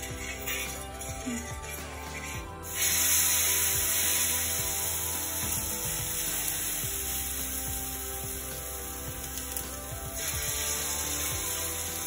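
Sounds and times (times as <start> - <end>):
background music: 0.0 - 12.0
batter sizzling on hot griddle: 2.1 - 12.0.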